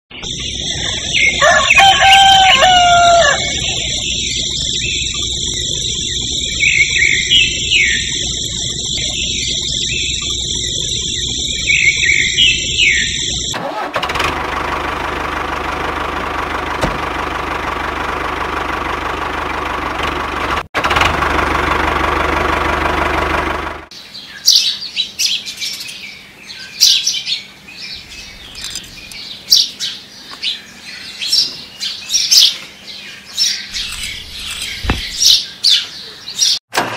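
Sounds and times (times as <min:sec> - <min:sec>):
birds chirping: 0:00.1 - 0:13.6, 0:23.9 - 0:36.7
high-pitched ambience: 0:00.1 - 0:13.6, 0:33.7 - 0:35.4
engine running: 0:00.1 - 0:23.9, 0:28.0 - 0:29.2, 0:33.7 - 0:35.4
bird squawks: 0:06.4 - 0:08.2, 0:11.5 - 0:13.3, 0:33.4 - 0:36.5.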